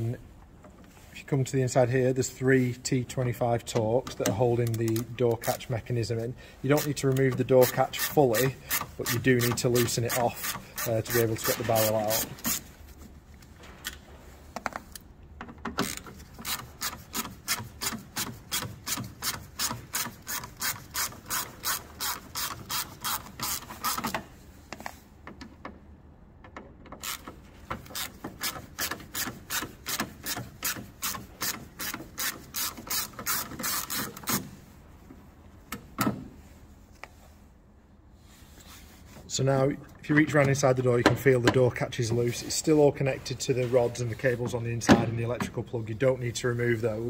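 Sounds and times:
ratchet screwdriver clicking: 15.8s - 24.2s, 27.0s - 34.4s.

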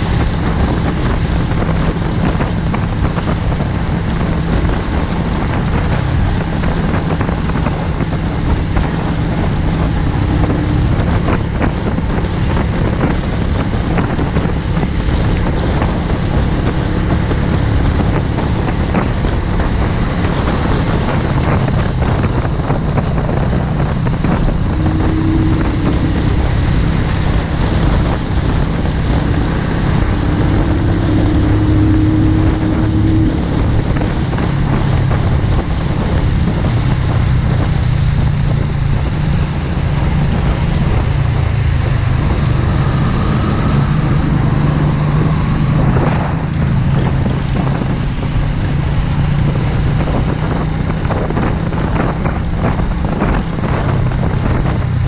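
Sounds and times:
motorcycle engine cruising: 0.0s - 55.0s
wind noise on microphone: 0.0s - 55.0s.

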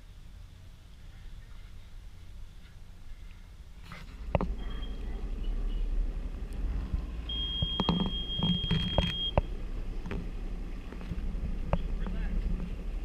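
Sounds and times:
high electronic beep: 7.3s - 9.5s.

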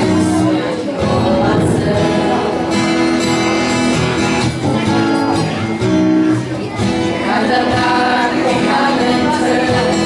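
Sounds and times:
girls singing together: 0.1s - 3.3s, 7.0s - 10.0s.

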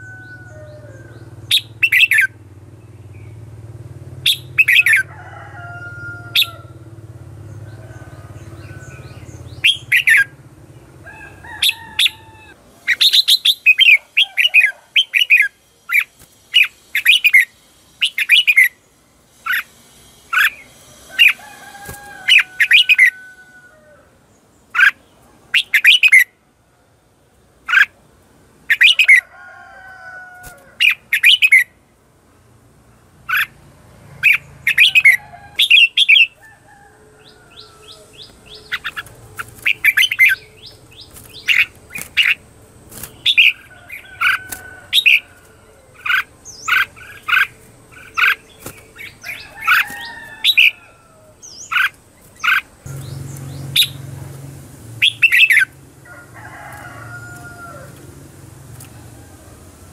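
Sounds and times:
bird chattering calls: 0.0s - 2.4s, 4.2s - 5.1s, 7.5s - 10.4s, 11.0s - 23.3s, 24.7s - 26.3s, 27.6s - 28.0s, 28.6s - 29.2s, 30.8s - 31.8s, 33.2s - 33.6s, 34.2s - 36.4s, 37.2s - 54.2s, 54.9s - 55.8s.

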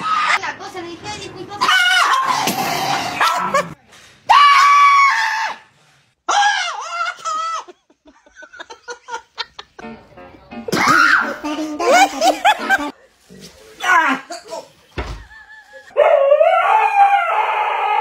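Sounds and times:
dogs yipping: 1.6s - 2.5s
small dogs crying: 1.6s - 2.5s.

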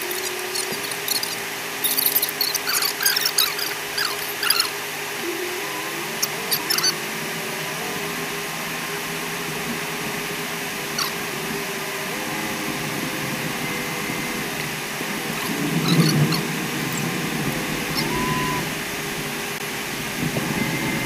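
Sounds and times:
short squeaky clicks: 0.0s - 4.8s, 6.2s - 7.0s, 15.4s - 16.4s
off-road vehicle driving: 0.0s - 21.0s.

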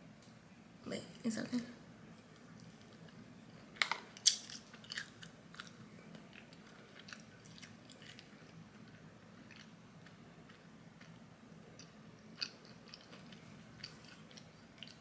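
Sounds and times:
person chewing: 4.2s - 15.0s.

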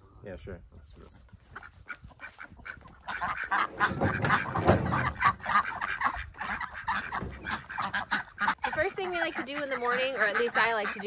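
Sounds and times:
poultry flock calling: 1.4s - 11.0s.

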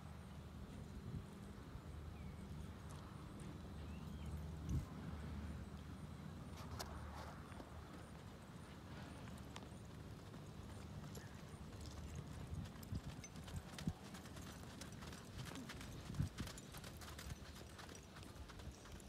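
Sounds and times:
muffled hoofbeats on dirt: 6.6s - 19.0s.

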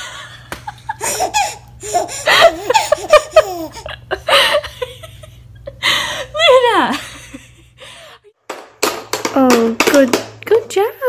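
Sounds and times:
baby giggling: 1.0s - 4.1s.

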